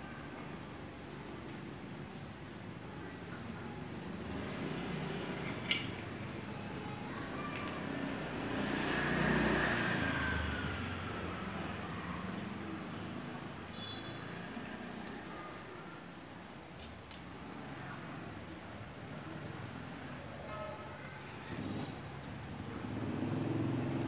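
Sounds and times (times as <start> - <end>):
steady traffic hum: 0.0 - 24.0
vehicle passing: 7.8 - 12.2.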